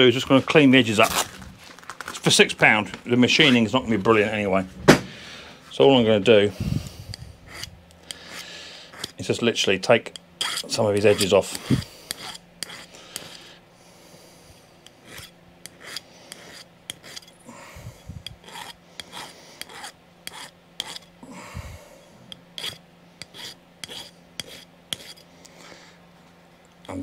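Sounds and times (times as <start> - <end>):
file rasping on metal: 7.1 - 9.3, 10.1 - 13.4, 14.8 - 17.4, 18.2 - 21.1, 22.6 - 25.3.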